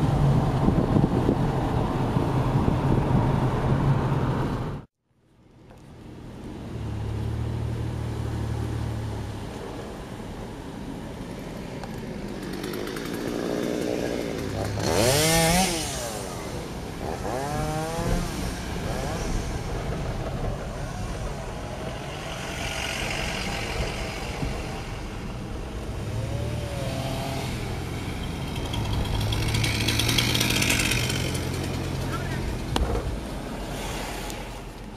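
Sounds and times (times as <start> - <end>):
road noise inside car: 0.0 - 12.4, 14.0 - 34.9
chainsaws revving: 12.3 - 18.4, 26.2 - 32.1
oncoming traffic hissing past: 13.5 - 34.9.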